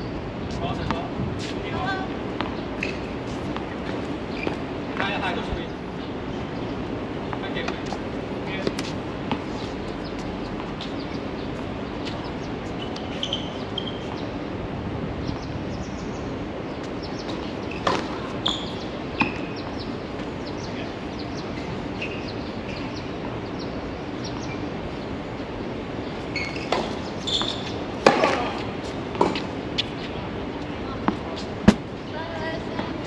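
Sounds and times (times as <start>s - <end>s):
steady background hum: 0.0s - 33.0s
tennis ball struck by rackets: 26.7s - 29.9s, 31.0s - 31.9s.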